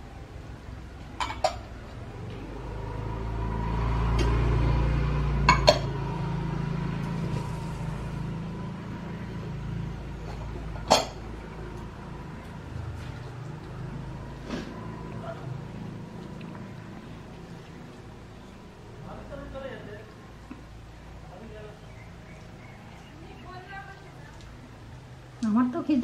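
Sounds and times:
dishes clinking on steel plates: 1.2 - 1.7, 10.3 - 11.2.

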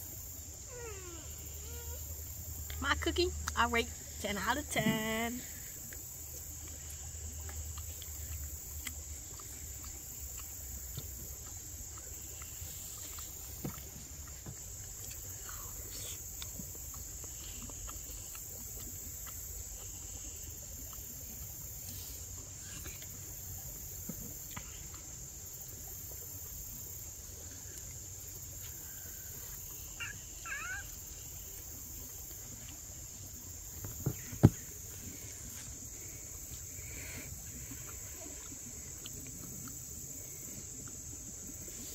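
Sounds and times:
insect chorus: 0.0 - 41.9.

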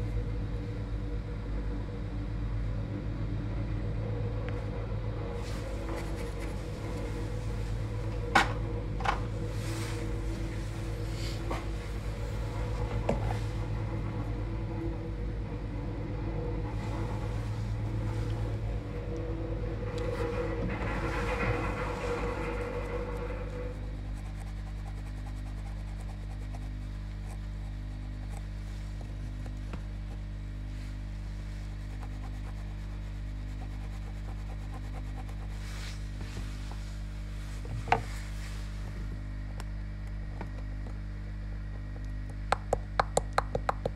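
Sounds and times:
low electrical hum: 0.0 - 43.9.

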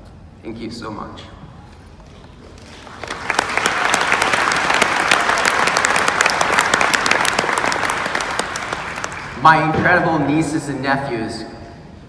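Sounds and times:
audience applauding: 2.6 - 9.4.

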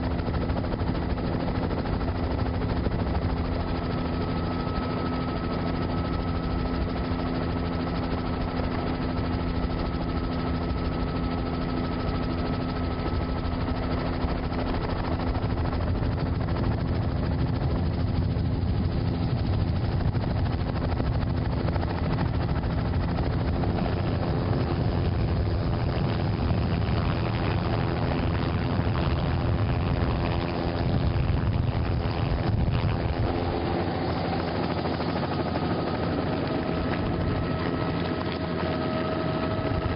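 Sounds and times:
aircraft engine drone: 0.0 - 39.9.

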